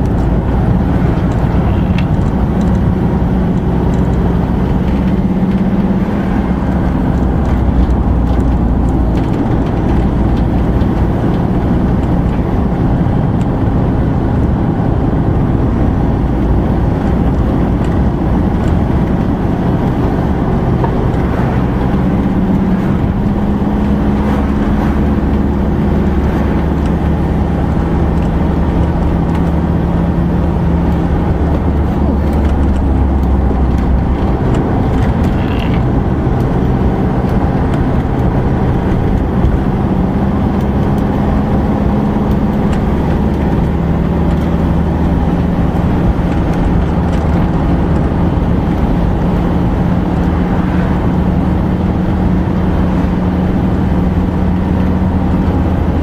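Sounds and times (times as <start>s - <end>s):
engine hum: 0.0s - 56.0s
light rattles in cab: 0.0s - 56.0s
tyre and road noise: 0.0s - 56.0s.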